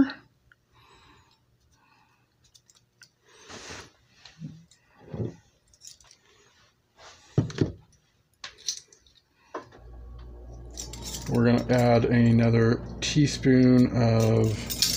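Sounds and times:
metal spoons and canister clinking: 0:10.7 - 0:12.0, 0:13.8 - 0:14.9.

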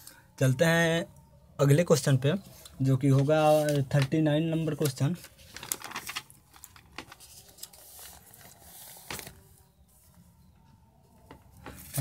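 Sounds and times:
paper page rustling: 0:02.6 - 0:09.6, 0:11.7 - 0:12.0.

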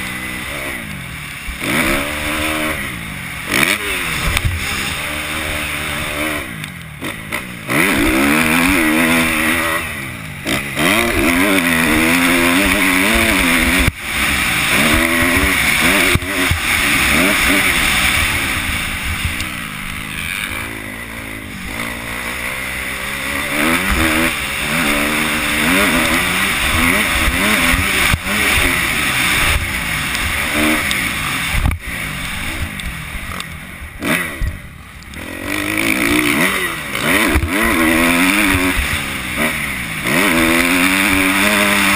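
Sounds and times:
motorcycle engine revving: 0:00.0 - 0:41.9.

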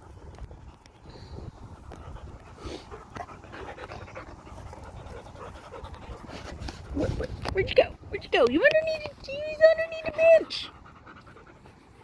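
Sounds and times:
dog panting: 0:00.0 - 0:12.0.

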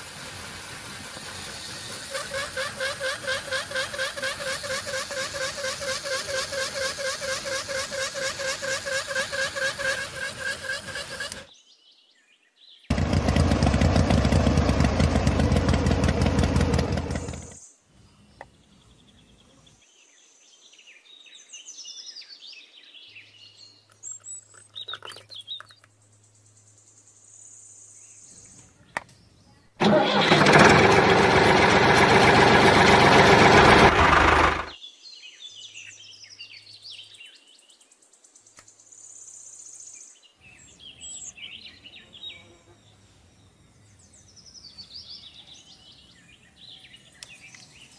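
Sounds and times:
small electric motor running: 0:00.0 - 0:11.5, 0:29.8 - 0:34.8.

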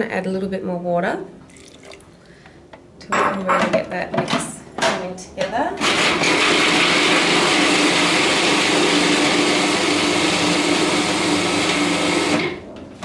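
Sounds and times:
electric blender whirring: 0:05.8 - 0:12.6.

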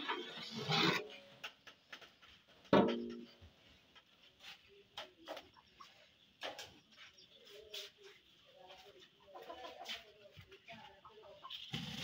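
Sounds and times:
pot boiling: 0:11.5 - 0:12.0.

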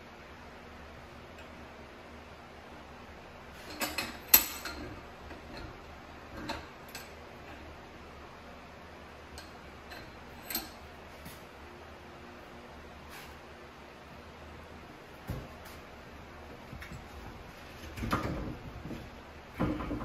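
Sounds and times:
metal parts clicking and knocking: 0:03.7 - 0:05.8.

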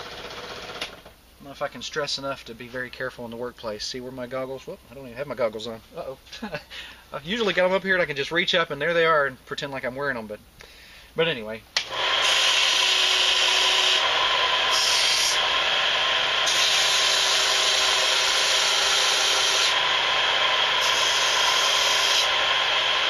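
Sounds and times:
bench power sander running: 0:11.8 - 0:23.0
wooden block rasping on abrasive: 0:12.2 - 0:20.0, 0:20.7 - 0:23.0.

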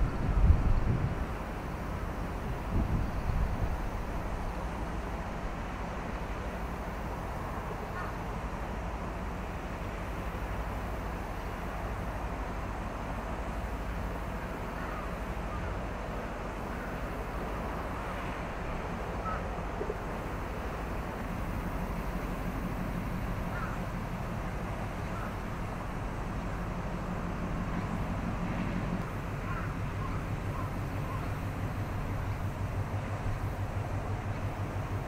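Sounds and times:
wind gust on microphone: 0:00.0 - 0:01.4, 0:02.4 - 0:04.4
low harbour rumble: 0:00.0 - 0:35.0
faint bird calls: 0:07.8 - 0:08.3, 0:14.3 - 0:15.8, 0:19.1 - 0:20.1, 0:23.4 - 0:23.9, 0:24.9 - 0:25.5, 0:29.4 - 0:32.5.

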